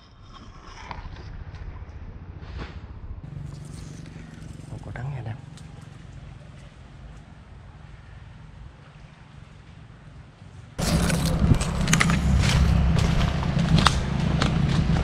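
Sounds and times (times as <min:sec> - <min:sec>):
sharp crackles: 0:00.0 - 0:07.3, 0:10.8 - 0:15.0
low microphone rumble: 0:00.8 - 0:05.6, 0:10.8 - 0:15.0
brush rustling: 0:10.8 - 0:15.0
footsteps crunching dry leaves: 0:10.8 - 0:15.0.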